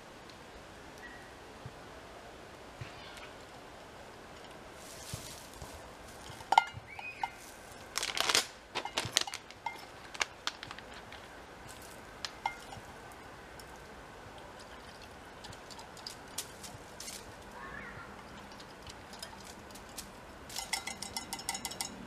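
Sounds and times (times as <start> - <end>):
rustling: 4.3 - 21.2.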